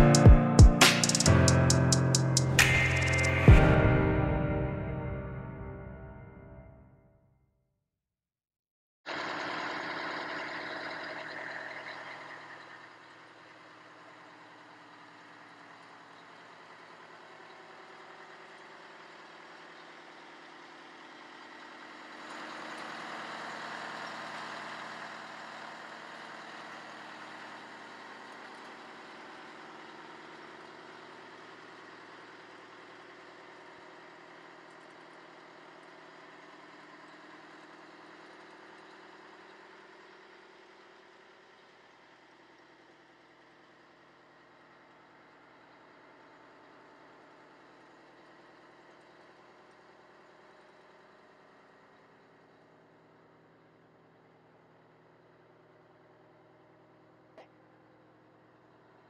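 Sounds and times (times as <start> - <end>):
diesel engine idling: 9.1 - 40.4.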